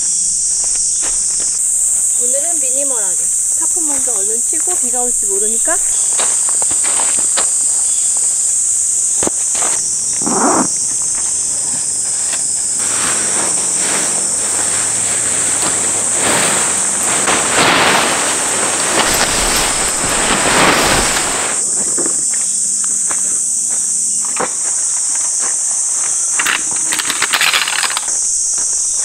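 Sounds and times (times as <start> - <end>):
tarp fabric rustling: 0.0 - 22.7
high-pitched insect drone: 0.0 - 29.0.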